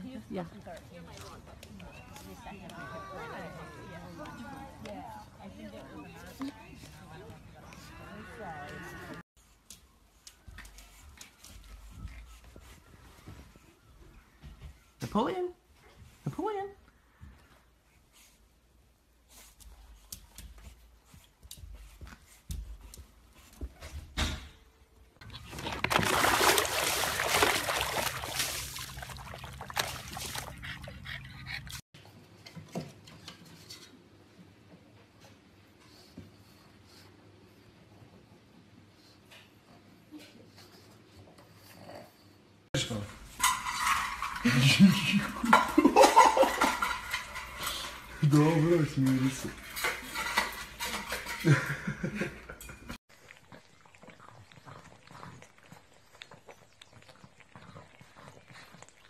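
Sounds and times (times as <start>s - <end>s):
water splashing in paddling pool: 25.3s - 31.0s
metal bowl clattering on tile: 25.4s - 30.4s, 42.8s - 53.0s.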